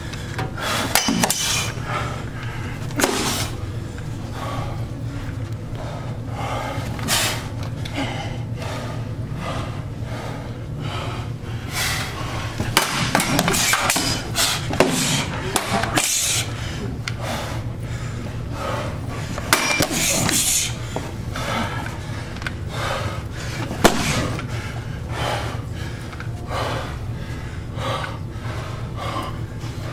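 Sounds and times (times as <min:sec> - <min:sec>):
steady low hum: 0:00.0 - 0:29.9
machetes striking shields: 0:00.9 - 0:01.7, 0:03.0 - 0:03.4, 0:12.7 - 0:16.3, 0:19.5 - 0:20.5, 0:23.8 - 0:24.4.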